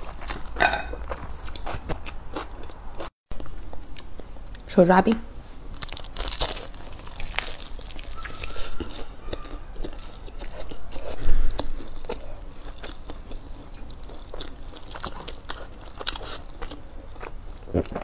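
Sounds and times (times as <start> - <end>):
person chewing crunchy food: 0.0 - 4.6, 5.7 - 18.0.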